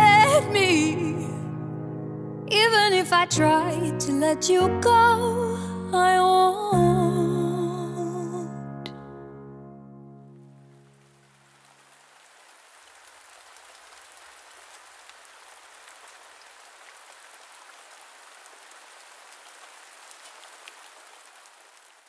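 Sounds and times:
single louder raindrops: 0:10.6 - 0:22.0
rain falling: 0:10.7 - 0:22.0.

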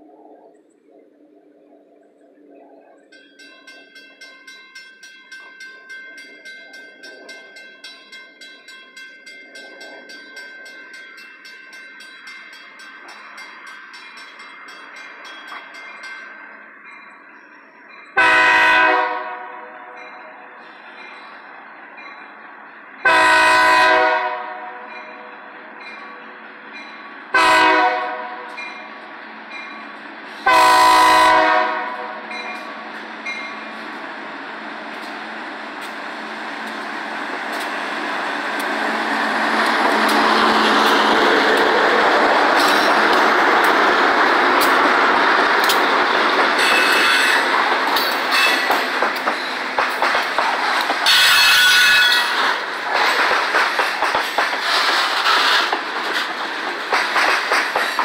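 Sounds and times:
railroad crossing bell ringing: 0:02.5 - 0:49.8, 0:50.8 - 0:52.7
locomotive horn blasts: 0:18.2 - 0:20.0, 0:23.0 - 0:24.9, 0:27.3 - 0:28.6, 0:30.4 - 0:32.3, 0:46.6 - 0:47.5, 0:51.0 - 0:52.4
locomotive engine running: 0:32.0 - 0:51.4.

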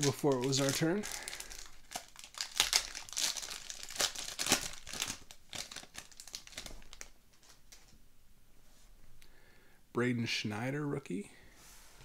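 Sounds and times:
foil wrapper tearing and crinkling: 0:00.0 - 0:07.1.

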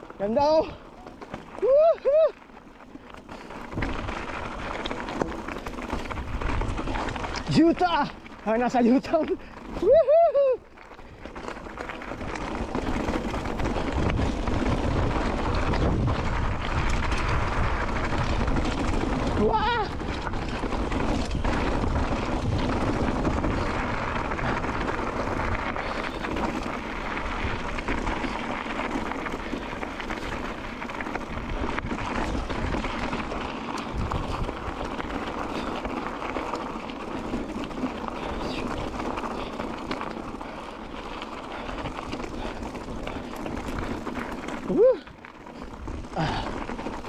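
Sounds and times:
wind buffeting microphone: 0:05.6 - 0:08.1, 0:12.1 - 0:40.1.

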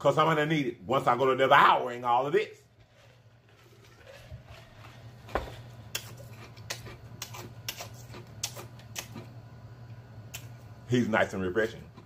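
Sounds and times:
wet lip smacks and mouth clicks: 0:05.9 - 0:09.2.

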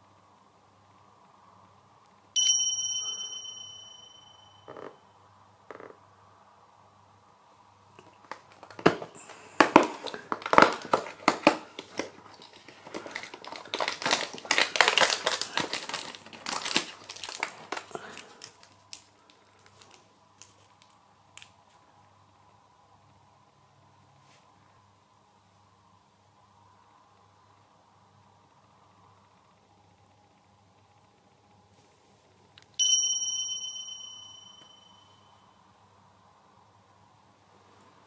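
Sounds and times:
plastic wrapper crinkling: 0:09.6 - 0:21.5
cardboard tearing: 0:13.2 - 0:17.9.

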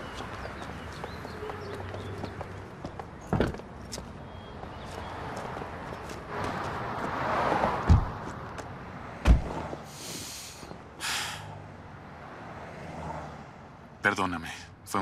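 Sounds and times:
man sighing heavily: 0:10.0 - 0:11.6.

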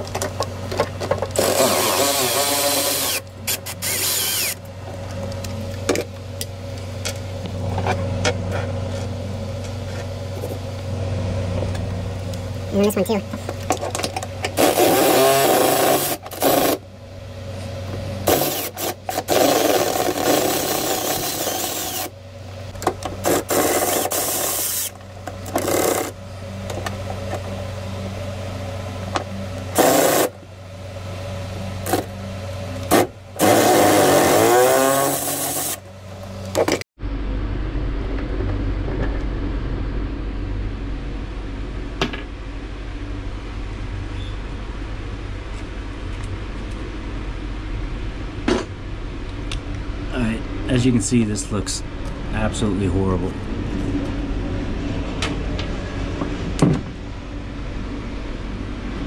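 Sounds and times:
steady low hum: 0:00.0 - 0:59.0
cordless ratchet running: 0:01.3 - 0:04.6, 0:18.3 - 0:22.1.

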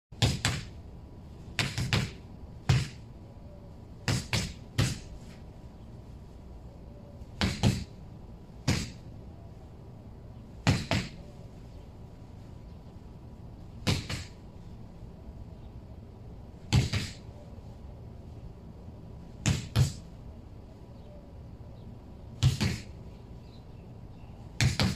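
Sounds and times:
punches thudding on rubber tyre: 0:00.2 - 0:00.8, 0:01.6 - 0:03.0, 0:04.1 - 0:05.1, 0:07.4 - 0:07.9, 0:08.6 - 0:09.0, 0:10.6 - 0:11.2, 0:13.8 - 0:14.4, 0:16.7 - 0:17.2, 0:19.4 - 0:20.0, 0:22.4 - 0:22.9, 0:24.6 - 0:24.9.

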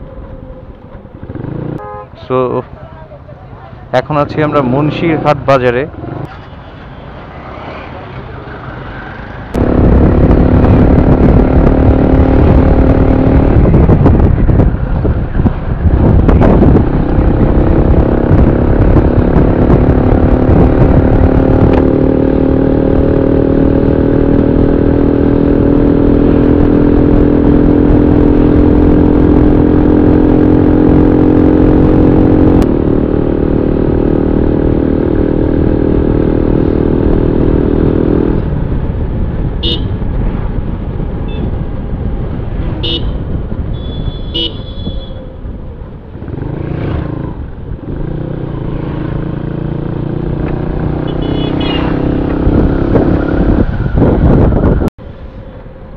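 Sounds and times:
motorcycle engine cruising: 0:00.0 - 0:01.8, 0:07.9 - 0:55.7
wind and road noise: 0:00.0 - 0:55.9
short horn beeps: 0:43.7 - 0:45.3.

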